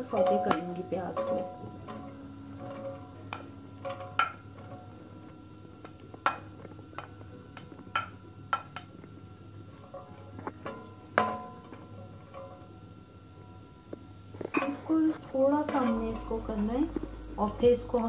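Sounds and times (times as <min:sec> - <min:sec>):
cookware clinking against pan: 0:00.0 - 0:04.9, 0:14.5 - 0:17.2.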